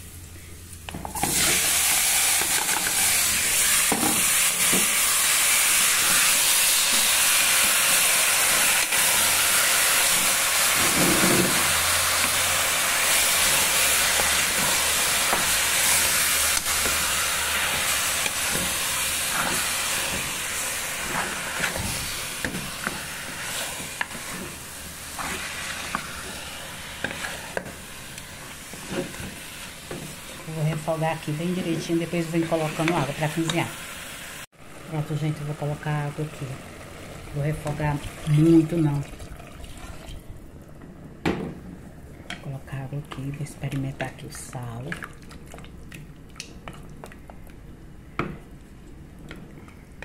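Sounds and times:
meat and vegetables sizzling in oil: 0.0 - 39.0
wooden spoon stirring and scraping: 1.1 - 33.7.

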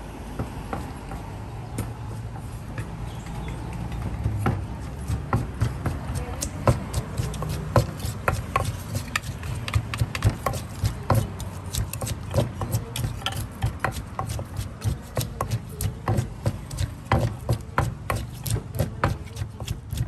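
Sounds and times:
utensils clicking on food: 6.4 - 20.0.

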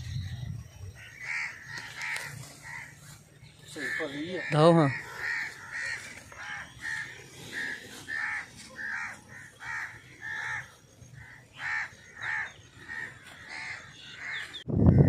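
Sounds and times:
crows cawing: 0.9 - 14.6.

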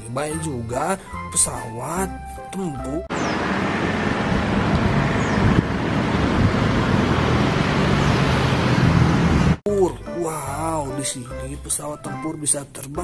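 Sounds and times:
propeller plane engines droning: 3.1 - 9.6.

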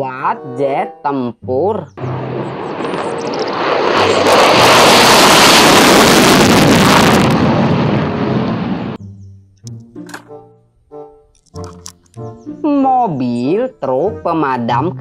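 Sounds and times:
fighter jet taking off: 2.0 - 9.0.

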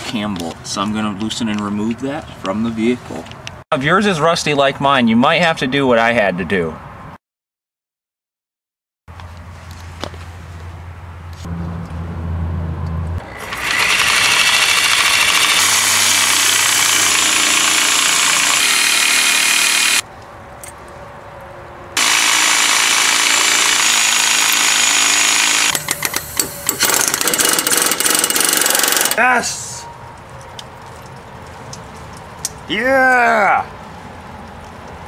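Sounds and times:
impact wrench hammering: 13.3 - 20.0, 22.0 - 29.2.

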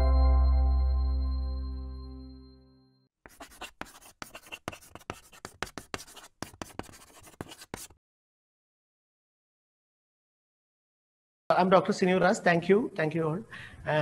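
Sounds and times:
ringing chime note: 0.0 - 3.0
chalk scratching on blackboard: 3.2 - 8.0.

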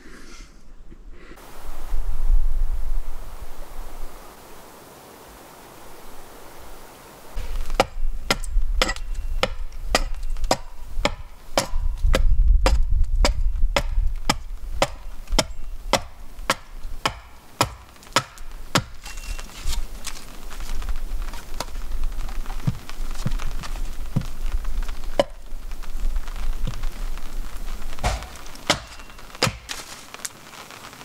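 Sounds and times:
axe chopping wood: 7.4 - 19.2, 28.0 - 30.0.

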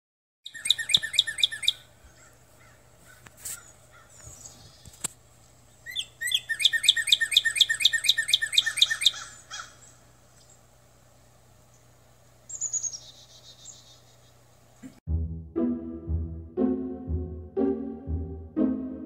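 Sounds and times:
songbird chirping: 0.5 - 2.8, 3.6 - 10.7, 11.6 - 14.9.

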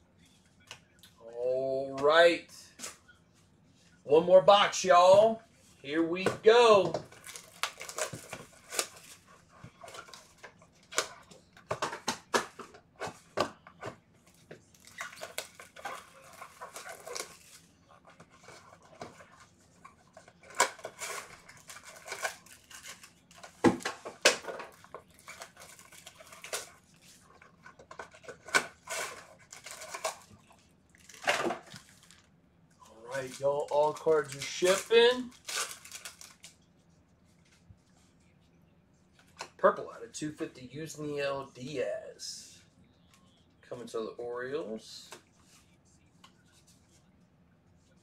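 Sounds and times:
plastic wrapping crinkling: 6.4 - 11.5, 13.8 - 36.7.

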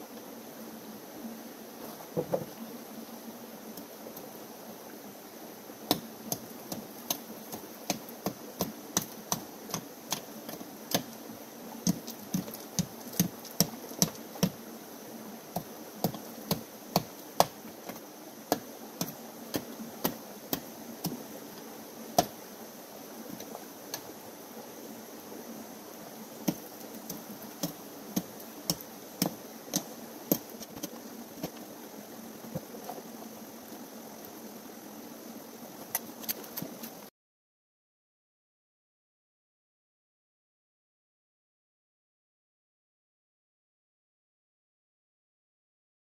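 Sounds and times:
creek running: 1.6 - 37.1.

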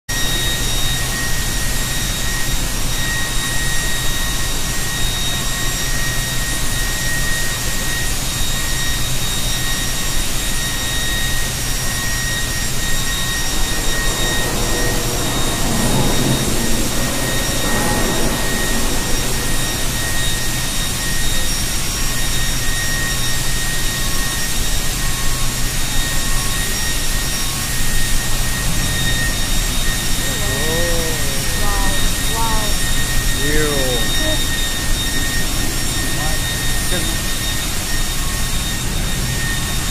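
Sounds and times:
high whine: 0.1 - 39.9
furnace roaring: 7.4 - 39.9.

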